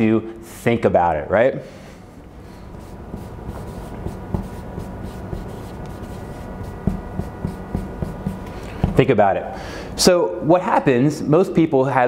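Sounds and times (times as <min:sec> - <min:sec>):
marker scratching and squeaking on paper: 0:02.8 - 0:08.4.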